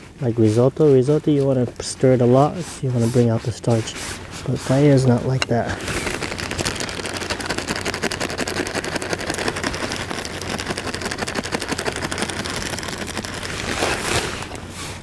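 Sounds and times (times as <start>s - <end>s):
stock boiling and bubbling: 0.0s - 15.0s
campfire crackling: 4.2s - 15.0s.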